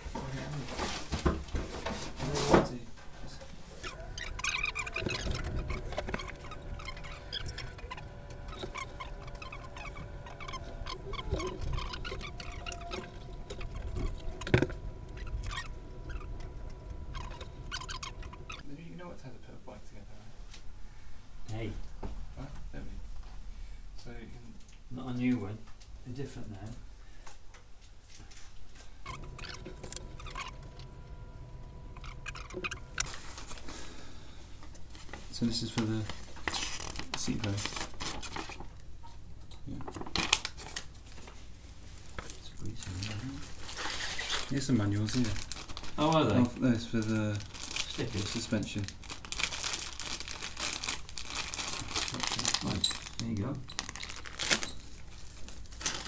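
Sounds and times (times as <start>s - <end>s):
bubble wrap crinkling: 3.2s - 18.6s, 29.1s - 38.8s, 39.7s - 56.0s
squeaky rubbing: 3.3s - 18.7s, 28.8s - 38.7s, 42.8s - 46.0s.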